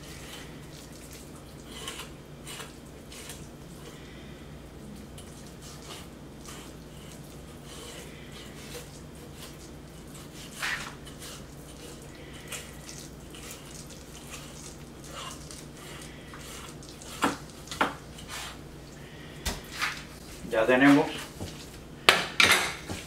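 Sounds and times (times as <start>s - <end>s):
knife squelching and scraping fish: 0.0s - 4.4s, 5.0s - 23.0s.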